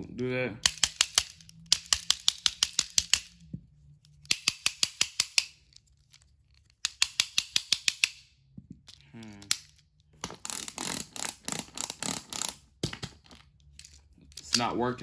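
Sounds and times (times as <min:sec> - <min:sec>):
toy engine rapid clicking: 0:00.6 - 0:03.3, 0:10.4 - 0:12.6.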